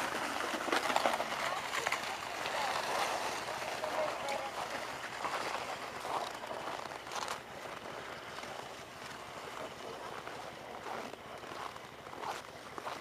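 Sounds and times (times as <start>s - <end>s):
plastic sled pulled over snow: 0.0s - 13.0s
footsteps on packed snow: 0.2s - 13.0s.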